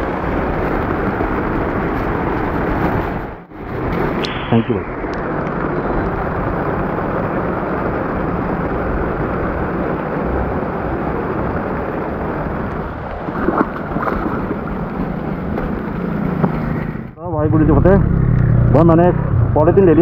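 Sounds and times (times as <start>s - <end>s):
heavy rain pouring: 0.0s - 18.4s
footsteps splashing through water: 13.2s - 15.2s.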